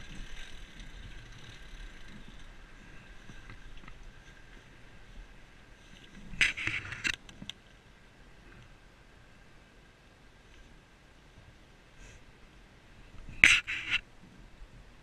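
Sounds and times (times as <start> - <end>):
rustling at microphone: 0.0 - 7.8, 13.0 - 15.0
faint background hum: 0.0 - 15.0.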